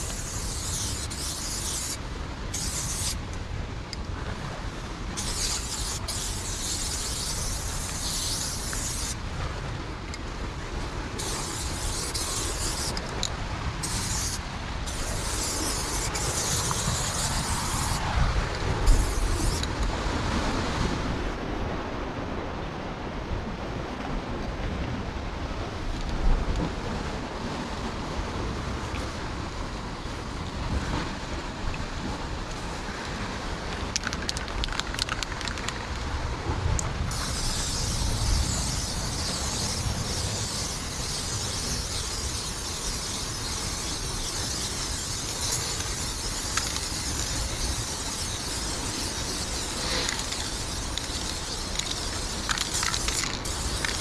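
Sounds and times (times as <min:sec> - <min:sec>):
spray paint can hissing: 0:00.0 - 0:03.2, 0:05.2 - 0:09.2, 0:11.2 - 0:18.2, 0:18.8 - 0:19.8, 0:33.9 - 0:36.0, 0:37.1 - 0:54.0
wind rumble on microphone: 0:00.0 - 0:54.0.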